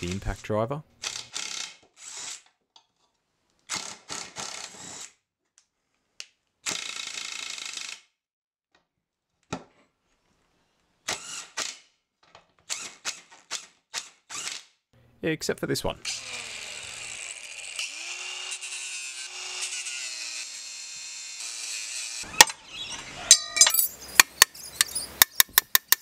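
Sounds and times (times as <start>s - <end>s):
impact driver hammering: 23.3s - 26.0s
sharp clicks: 23.7s - 26.0s.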